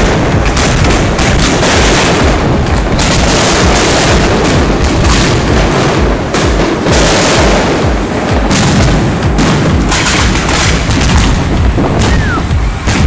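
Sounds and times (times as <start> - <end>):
fireworks bursting: 0.0 - 13.0.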